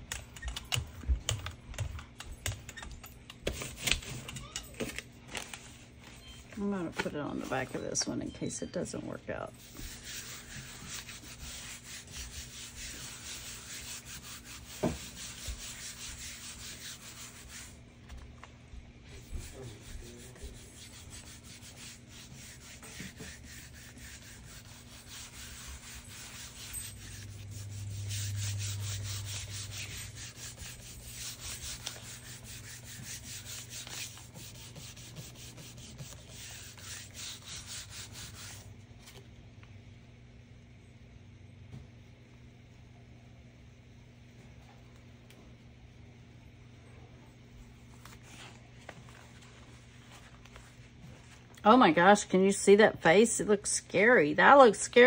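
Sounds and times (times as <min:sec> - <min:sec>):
low hum: 0:07.4 - 0:38.6
palm swishing on paper: 0:09.6 - 0:17.8, 0:19.1 - 0:39.2.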